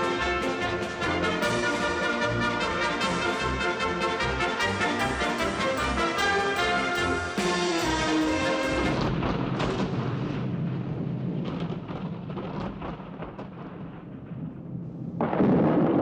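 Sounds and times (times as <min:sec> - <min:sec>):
orchestral music: 0:00.0 - 0:10.4
loud peal of thunder: 0:07.4 - 0:16.0
rolling thunder: 0:07.6 - 0:16.0.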